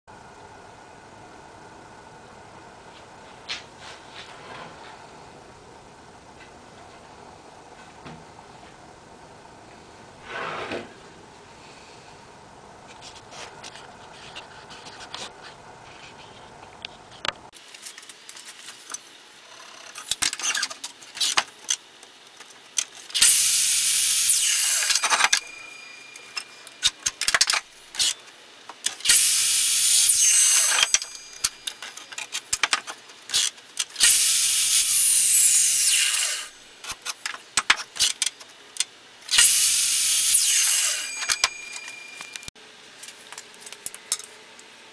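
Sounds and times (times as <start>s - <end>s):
miter saw cutting wood: 23.0s - 28.2s, 28.9s - 37.0s, 39.3s - 42.5s
saw blade winding down: 23.1s - 28.2s, 28.9s - 32.7s, 33.3s - 36.6s, 39.3s - 42.5s.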